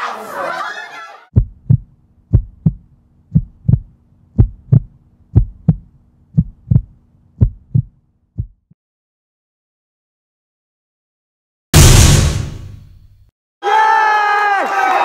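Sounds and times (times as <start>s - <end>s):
heartbeat thumps: 1.4s - 8.7s.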